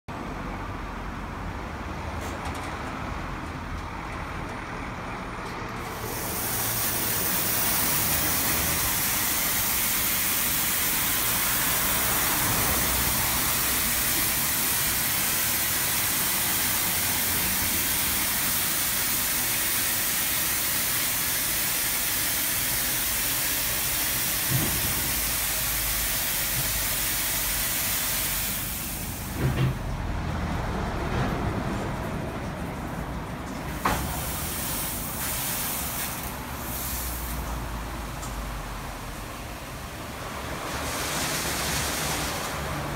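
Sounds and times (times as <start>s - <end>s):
water spraying hiss: 5.8s - 29.4s, 33.7s - 42.9s.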